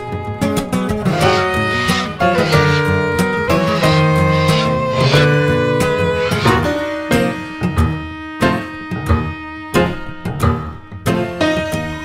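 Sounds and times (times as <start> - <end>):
plucked string notes: 0.9 - 10.8
low bowed string tone: 1.0 - 8.2.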